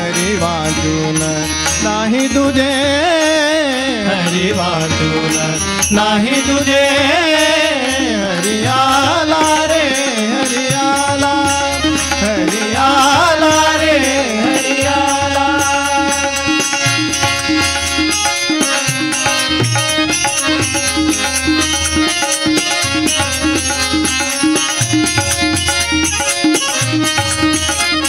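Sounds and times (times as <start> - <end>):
man singing: 0.0 - 18.4
harmonium: 0.0 - 28.0
tabla: 0.0 - 28.0.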